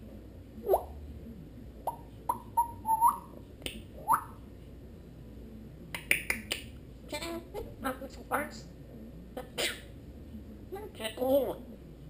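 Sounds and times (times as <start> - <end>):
parrot whistling: 1.9 - 3.4, 4.0 - 4.4.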